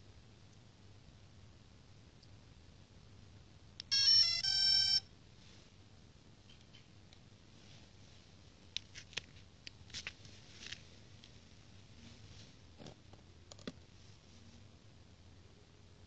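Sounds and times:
hands handling plastic clicks: 8.7 - 11.4, 12.8 - 13.8.

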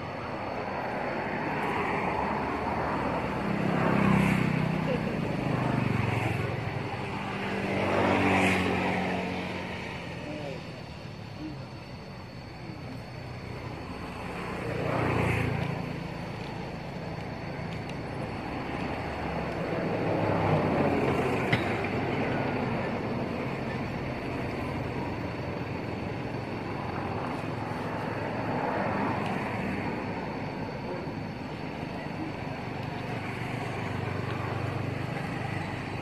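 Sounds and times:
road traffic rumble: 0.0 - 36.0
vehicles passing by: 0.0 - 36.0.

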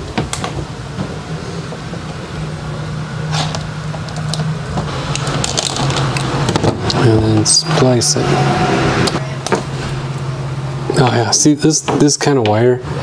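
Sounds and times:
low machine hum: 0.0 - 13.0
wire strippers clicking and snipping: 3.4 - 7.0.

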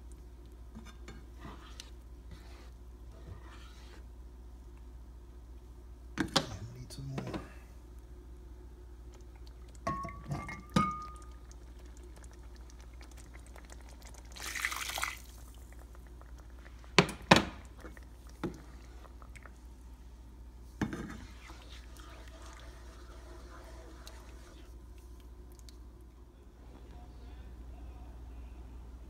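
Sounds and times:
liquid poured into a pan: 9.3 - 16.9, 21.1 - 24.7
liquid splash: 14.2 - 15.7.

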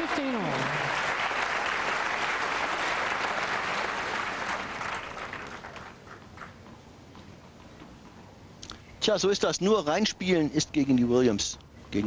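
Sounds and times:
spectators applauding: 0.0 - 6.5.

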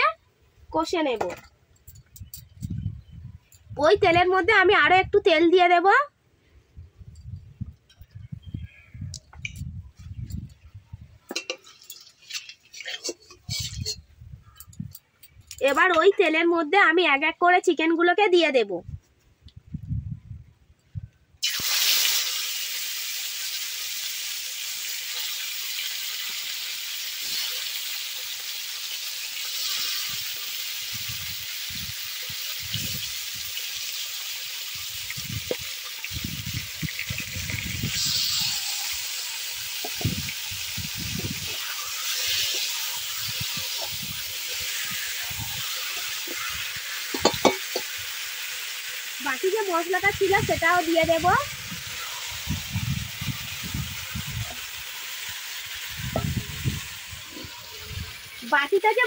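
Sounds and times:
chicken sizzling in hot oil: 11.3 - 14.1, 21.4 - 59.0.

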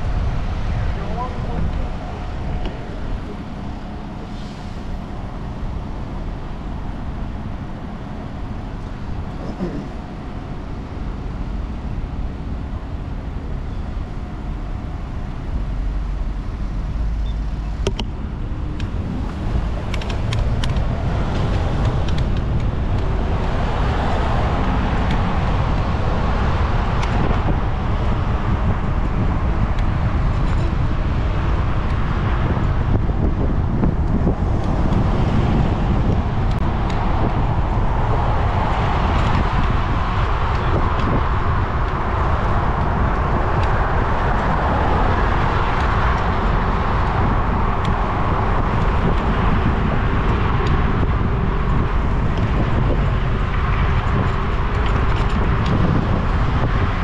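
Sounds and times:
cars passing: 0.0 - 57.0
city street traffic: 0.0 - 57.0
wind rushing: 14.1 - 57.0.

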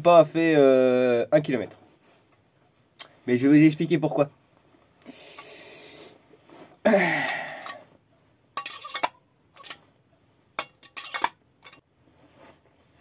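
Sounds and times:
metal engine parts clinking: 7.5 - 7.8, 8.6 - 9.9, 10.6 - 11.8.

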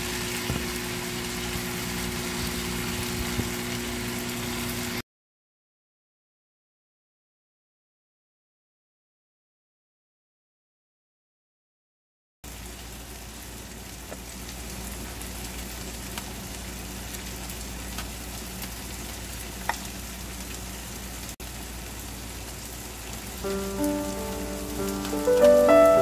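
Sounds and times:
sauce sizzling in a pot: 0.0 - 5.0, 12.5 - 26.0
music: 23.4 - 26.0.

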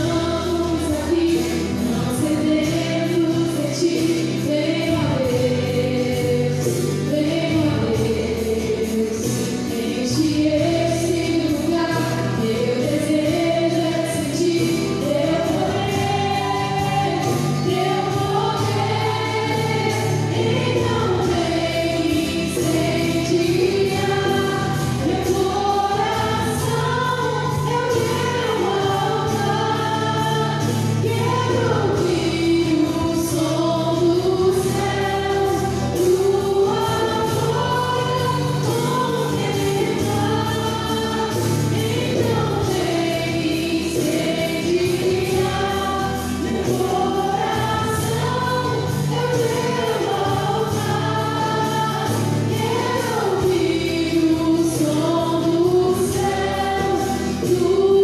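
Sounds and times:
electric guitar: 0.0 - 58.0
people singing together: 0.0 - 58.0
strummed acoustic guitar: 0.0 - 58.0.

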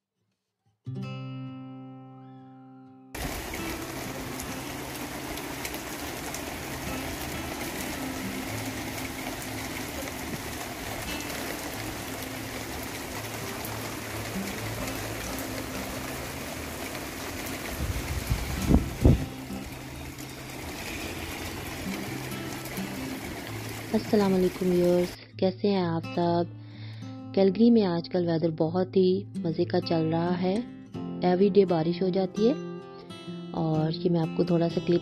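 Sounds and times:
strummed acoustic guitar chord: 0.9 - 25.1
heavy rain pouring: 3.2 - 25.2.

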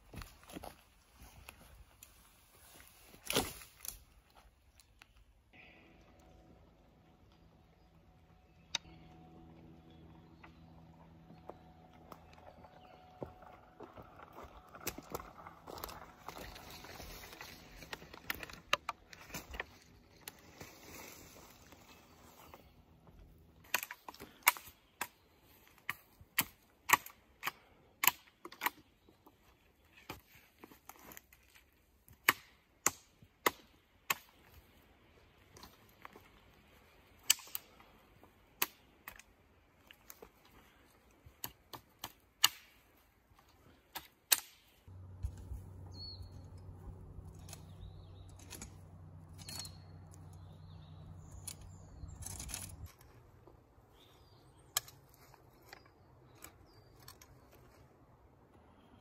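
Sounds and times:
steady low hum: 5.6 - 25.4, 44.8 - 55.0.

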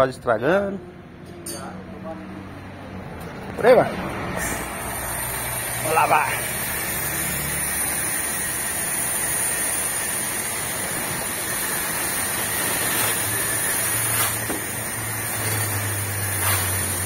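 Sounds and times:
pressure washer jet hissing: 4.4 - 17.0.

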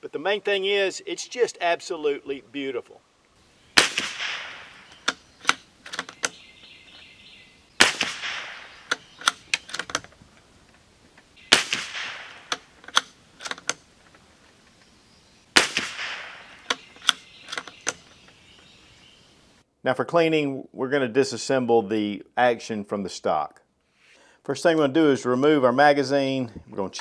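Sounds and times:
rifle shots: 3.7 - 5.7, 7.8 - 9.6, 11.4 - 13.2, 15.5 - 17.3
rifle bolt metallic clicks: 3.8 - 7.0, 7.8 - 10.2, 11.5 - 14.2, 15.6 - 18.4.

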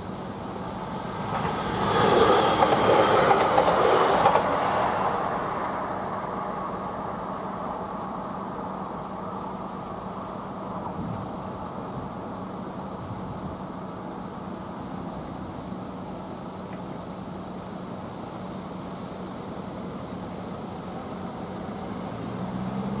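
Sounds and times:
car engines idling: 0.0 - 2.8, 3.4 - 23.0
high insect buzz: 17.1 - 23.0.

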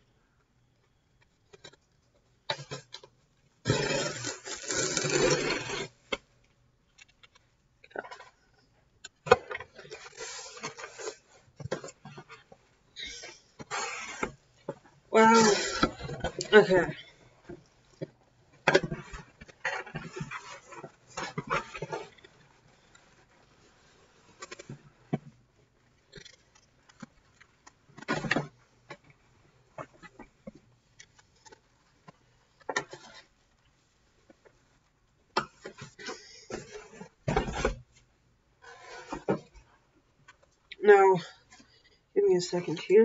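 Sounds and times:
small clicks and rustles: 0.0 - 3.5, 5.8 - 15.0, 15.9 - 42.2
packaging ripping and scraping: 3.6 - 6.0, 9.7 - 12.3, 13.2 - 14.4
cardboard box tearing: 3.7 - 5.9.

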